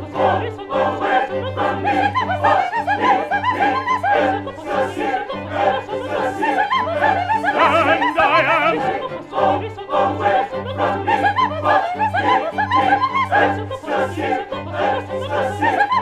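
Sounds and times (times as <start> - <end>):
operatic singing: 0.2 - 16.0.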